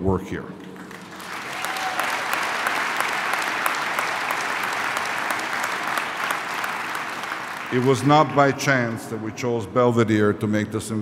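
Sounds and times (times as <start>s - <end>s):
audience applauding: 0.7s - 9.2s.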